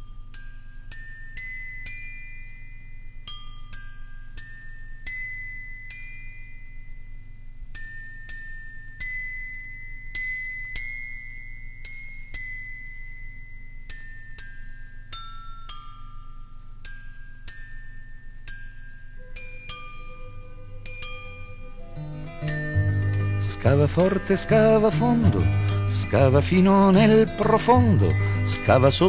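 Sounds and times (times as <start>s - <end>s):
bell-like struck notes melody: 8.4s - 29.0s.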